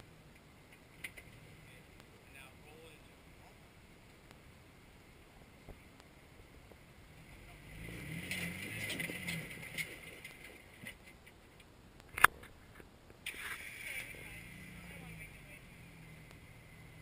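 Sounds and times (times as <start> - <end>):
off-road vehicle engine revving: 6.4 - 11.0, 13.3 - 17.0
tyres crunching on rock and gravel: 7.8 - 11.2.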